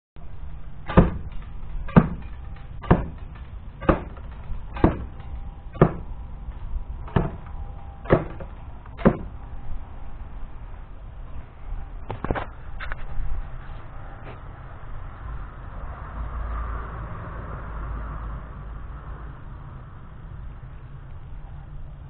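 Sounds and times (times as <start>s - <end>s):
arrows hitting cardboard target: 0.9s - 1.3s, 1.9s - 2.2s, 2.8s - 3.2s, 3.8s - 5.2s, 5.8s - 6.1s, 7.1s - 7.5s, 8.1s - 9.3s.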